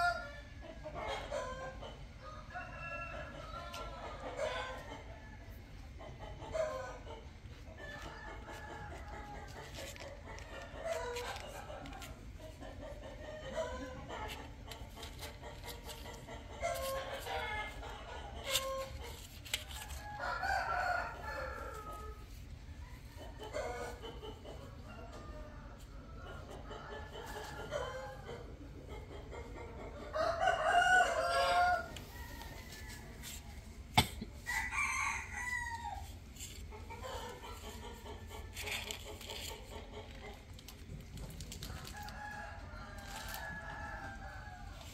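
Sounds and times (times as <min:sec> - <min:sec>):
chicken clucking: 0:00.0 - 0:44.9
rooster crowing: 0:19.7 - 0:22.2, 0:30.1 - 0:33.4, 0:34.4 - 0:36.1, 0:41.6 - 0:44.9.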